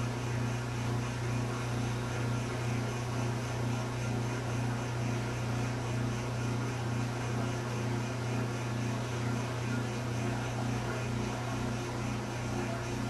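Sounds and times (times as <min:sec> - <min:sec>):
low throbbing mechanical hum: 0:00.0 - 0:13.0.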